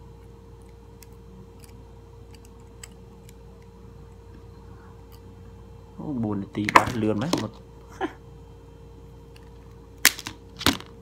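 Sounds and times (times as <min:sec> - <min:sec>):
steady background hum: 0:00.0 - 0:11.0
pliers and wire clicking: 0:00.2 - 0:04.2.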